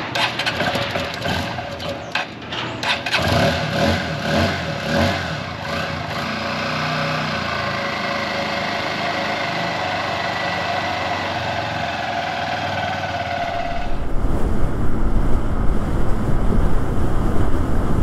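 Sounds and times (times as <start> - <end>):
motorcycle engine running: 2.9 - 18.0
wind rumble on microphone: 13.4 - 18.0.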